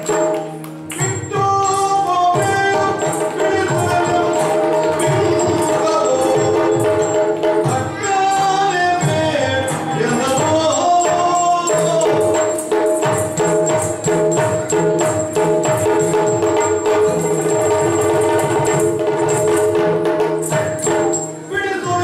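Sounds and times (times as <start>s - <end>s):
person singing: 0.0s - 12.6s, 21.4s - 22.0s
jingling cymbals and bells: 0.0s - 22.0s.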